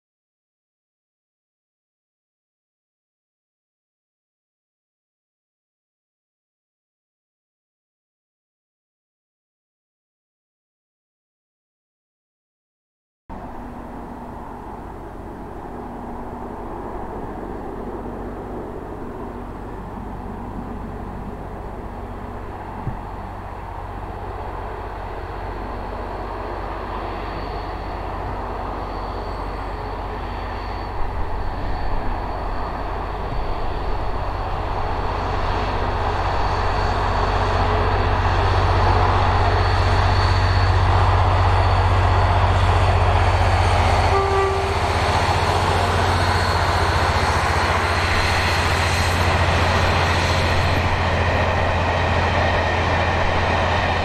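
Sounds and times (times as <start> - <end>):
diesel locomotive engine drone: 13.3 - 54.0
thin high ringing tone: 25.1 - 35.0.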